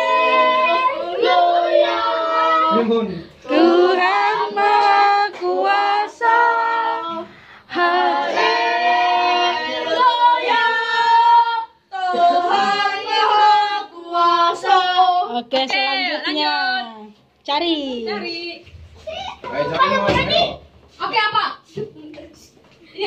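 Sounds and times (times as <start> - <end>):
children singing: 0.0 - 16.0.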